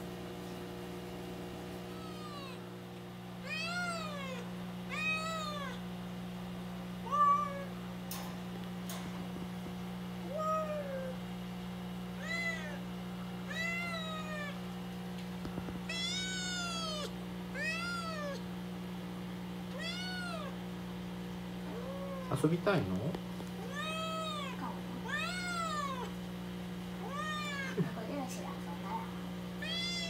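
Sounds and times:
steady electrical hum: 0.0 - 30.0
kitten meowing: 1.9 - 2.6, 3.4 - 5.8, 7.0 - 7.8, 10.3 - 11.2, 12.2 - 12.8, 13.5 - 14.6, 15.9 - 18.4, 19.7 - 20.6, 21.7 - 22.4, 23.6 - 26.1, 27.0 - 27.8, 29.6 - 30.0.

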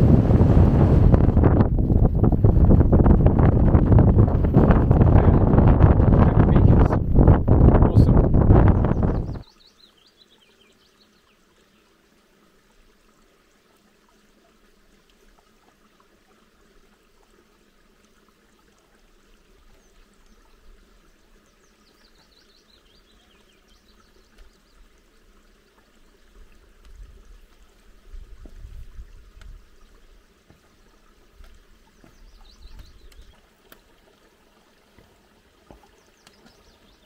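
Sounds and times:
wind rumbling on microphone: 0.0 - 9.5, 26.8 - 30.0
faint stream trickling: 0.0 - 37.0
songbird singing: 7.7 - 12.0, 19.6 - 24.9, 31.8 - 33.5, 35.7 - 37.0.

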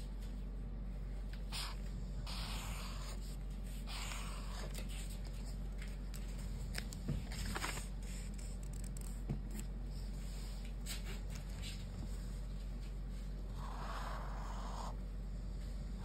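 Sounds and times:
steady low hum: 0.0 - 16.0
marker scratching on paper: 1.5 - 4.8
page turning rustle: 6.7 - 9.2.

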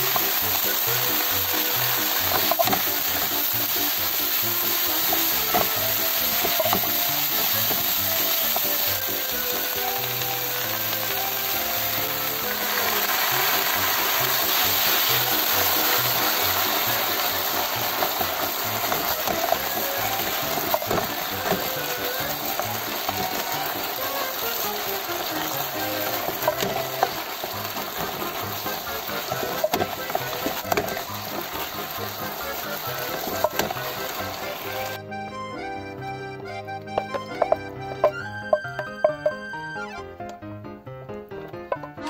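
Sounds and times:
food sizzling in a frying pan: 0.0 - 35.0
background music: 0.0 - 42.0
wooden spatula scraping: 1.1 - 10.0, 10.8 - 34.9.

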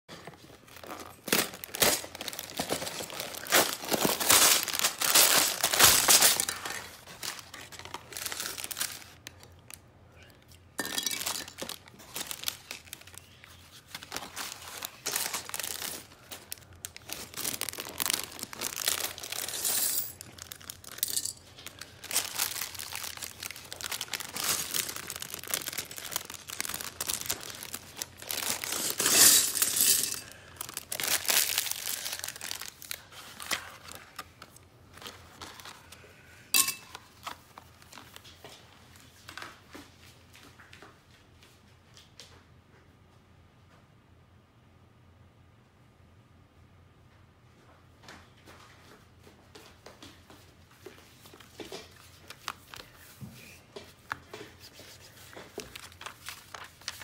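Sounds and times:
plastic bags crinkling: 0.2 - 9.8, 10.8 - 36.0, 54.2 - 57.0
plastic pieces clinking: 10.8 - 13.1, 16.8 - 32.7.

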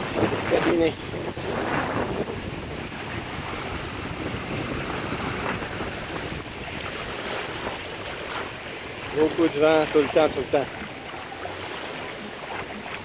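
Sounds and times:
small waves washing on sand: 0.0 - 13.0
wind blowing across microphone: 0.0 - 13.0.

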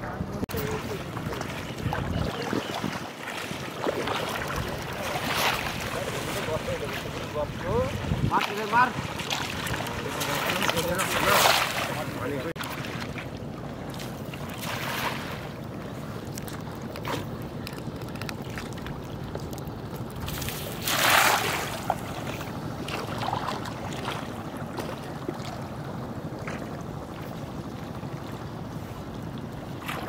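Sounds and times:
wind rumble on microphone: 0.0 - 11.3
net splashing into water: 20.3 - 22.1.

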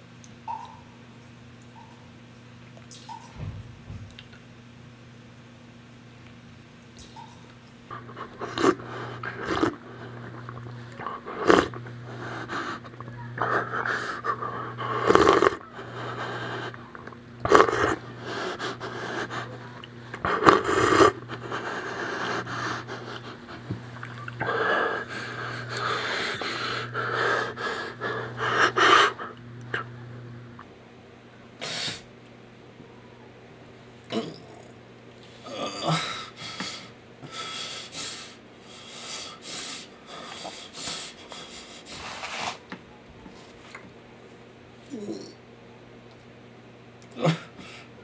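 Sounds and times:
low pulsing hum: 7.0 - 30.7.

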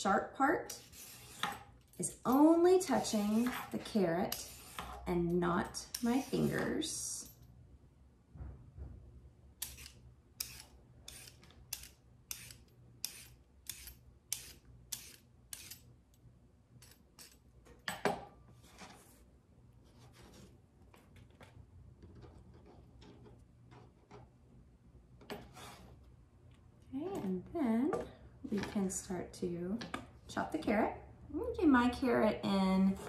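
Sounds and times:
peeler scraping a carrot: 0.6 - 1.6, 3.1 - 5.1.

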